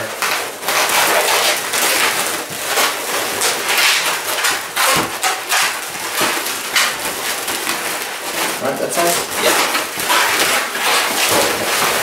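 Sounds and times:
balloons rubbing together: 0:00.0 - 0:12.0.

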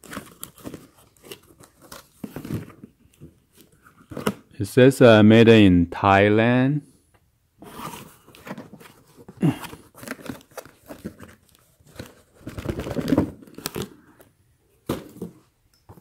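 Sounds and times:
cardboard scraping and rustling: 0:07.6 - 0:13.9.

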